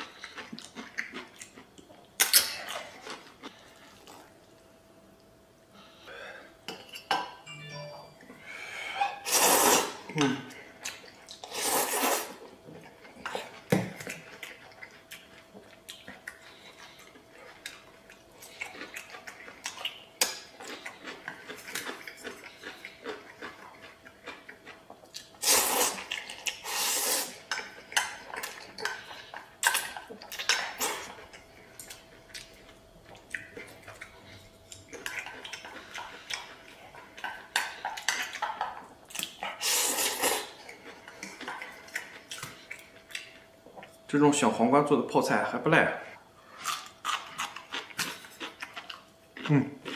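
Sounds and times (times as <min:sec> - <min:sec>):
noodle slurping: 0:09.2 - 0:10.0, 0:11.4 - 0:12.4.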